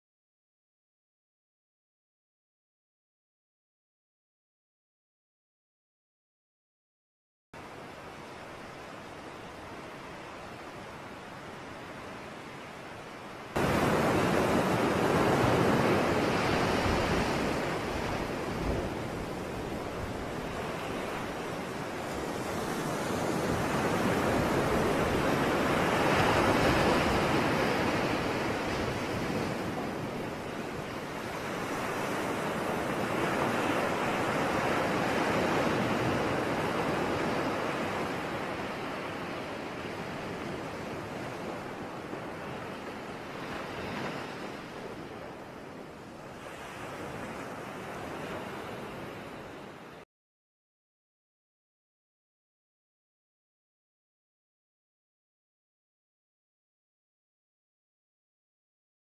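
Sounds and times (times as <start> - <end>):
ocean waves washing in: 7.6 - 50.1.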